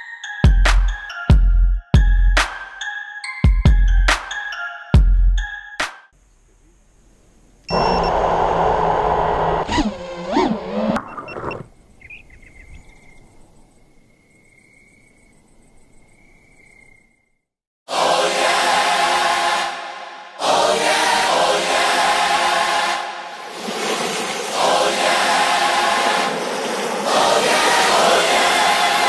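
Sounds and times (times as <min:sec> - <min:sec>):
choral music: 0:17.9 - 0:29.0
rushing noise with sliding tones: 0:18.1 - 0:29.0.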